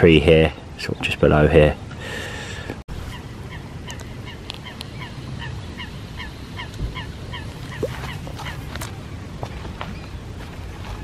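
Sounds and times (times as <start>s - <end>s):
water bird calling: 4.2s - 8.7s.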